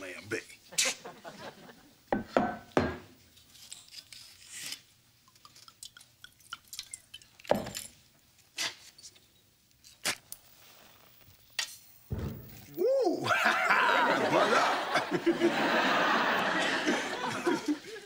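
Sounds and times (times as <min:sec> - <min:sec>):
glass bottle knocking on wood: 0:02.2 - 0:03.1.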